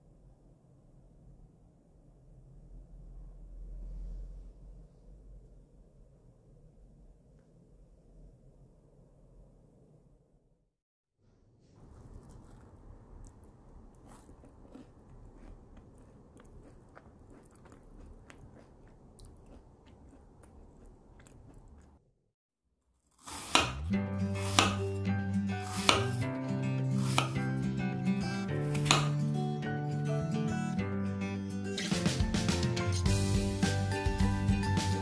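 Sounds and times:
knife cutting on cutting board: 0:23.1 - 0:24.9, 0:25.6 - 0:26.2, 0:27.0 - 0:27.4, 0:28.3 - 0:29.2
acoustic guitar music: 0:23.9 - 0:35.0.

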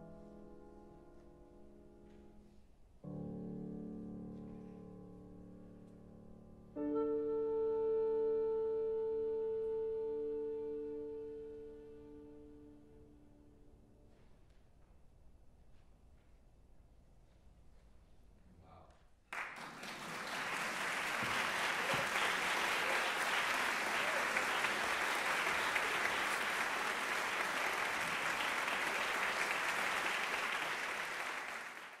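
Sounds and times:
audience applause: 0:19.3 - 0:32.0.

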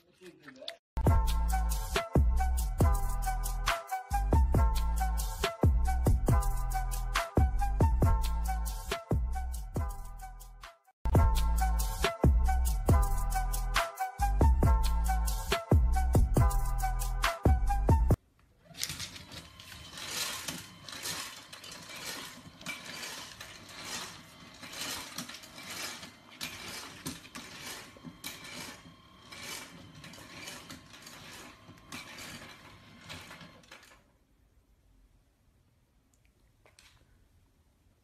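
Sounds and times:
feeder motor turning: 0:18.6 - 0:34.1.

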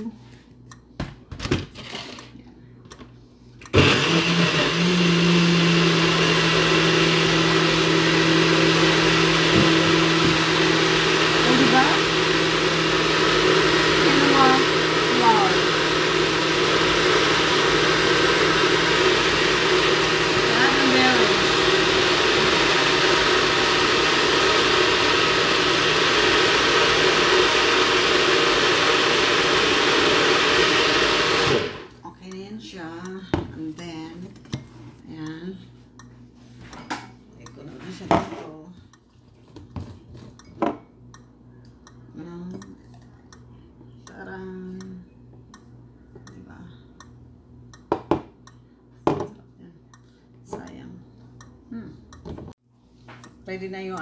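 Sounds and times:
blender motor running: 0:03.7 - 0:32.0.

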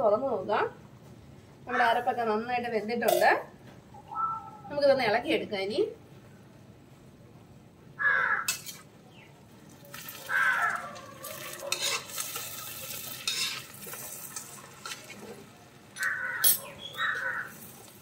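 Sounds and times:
metal spatula scraping iron pan: 0:08.5 - 0:08.9, 0:11.4 - 0:15.4
low sizzle from hot pan: 0:09.4 - 0:18.0.

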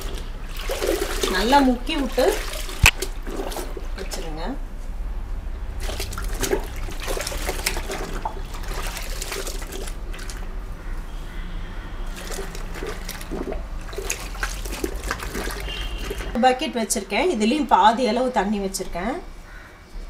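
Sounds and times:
cloth mats sloshing in soapy water: 0:00.0 - 0:04.6, 0:05.8 - 0:10.5, 0:12.1 - 0:16.4.

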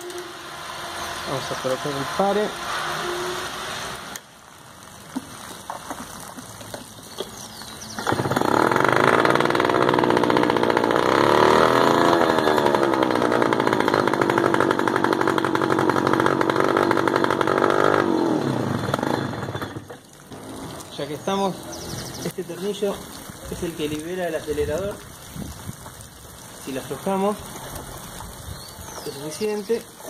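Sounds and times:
outboard motor running: 0:05.1 - 0:22.3.

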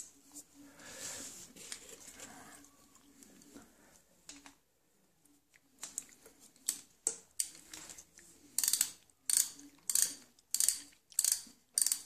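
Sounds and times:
socket ratchet clicking: 0:08.6 - 0:12.0.

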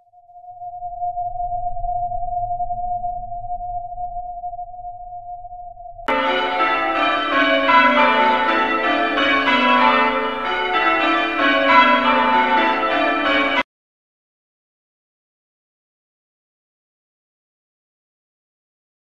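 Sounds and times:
church bells pealing: 0:06.1 - 0:13.7.

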